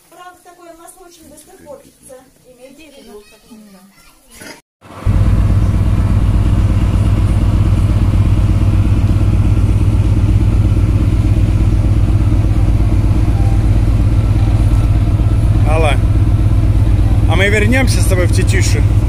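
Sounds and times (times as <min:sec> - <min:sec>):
engine running: 0:04.8 - 0:19.0.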